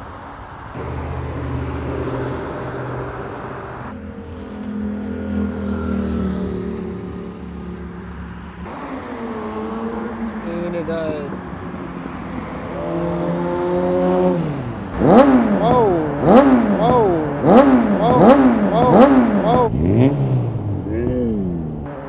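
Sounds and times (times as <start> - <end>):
car engines passing: 0.0 - 22.0.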